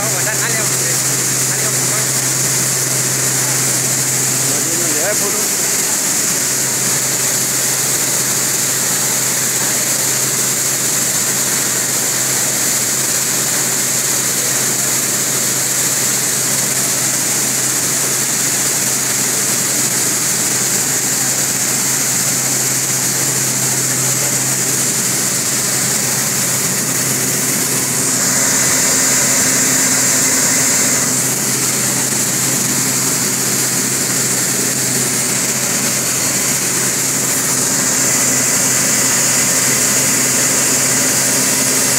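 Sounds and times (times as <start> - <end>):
machine mechanical hum: 0.0 - 41.9
airy hiss of fans: 17.1 - 41.9.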